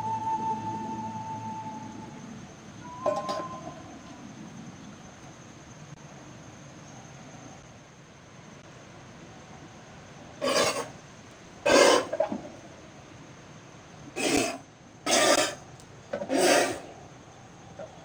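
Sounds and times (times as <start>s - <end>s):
man blowing hissing puffs: 16.2s - 16.9s.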